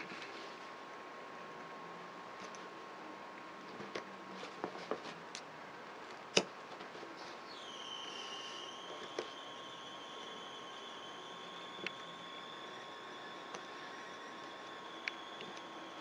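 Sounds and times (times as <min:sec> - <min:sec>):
steady hiss: 0:05.8 - 0:16.0
faint steady tone: 0:07.2 - 0:16.0.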